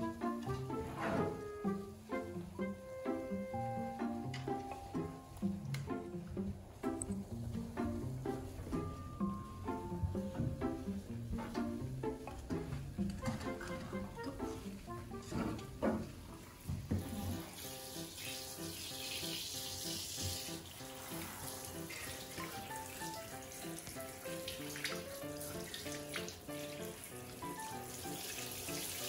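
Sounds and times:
light background music: 0.0 - 29.0
shower head spraying water: 16.3 - 29.0.

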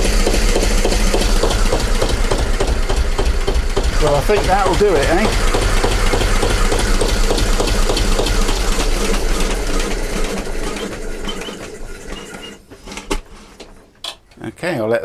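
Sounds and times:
diesel engine running: 0.0 - 12.3.

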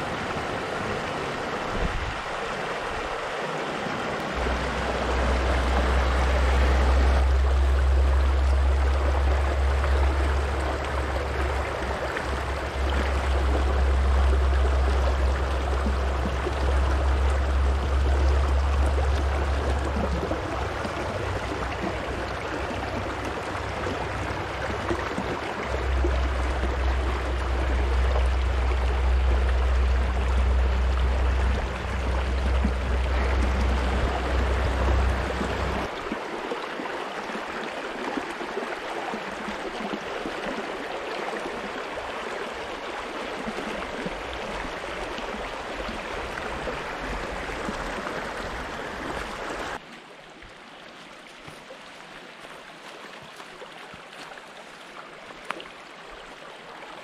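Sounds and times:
river rushing over stones: 0.0 - 57.0
low rumble: 4.4 - 36.1.

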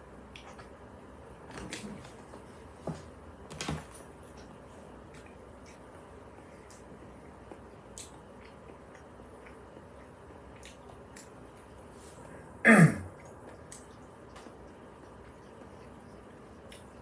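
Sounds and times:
man clearing throat: 12.6 - 13.1.

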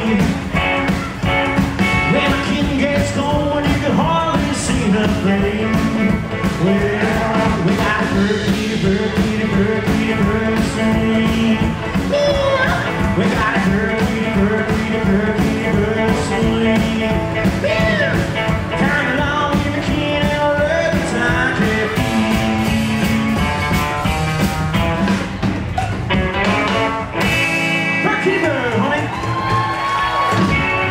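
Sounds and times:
man singing lead vocal: 0.0 - 1.1, 1.9 - 22.9
drum kit: 0.0 - 30.9
electric guitar: 0.0 - 30.9
upright double bass: 0.0 - 30.9.

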